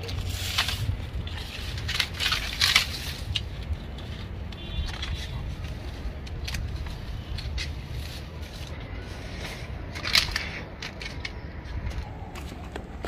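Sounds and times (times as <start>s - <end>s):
palm fronds snipped: 0.0s - 3.5s
fronds rustling: 0.0s - 13.0s
steady low rumble: 0.0s - 13.0s.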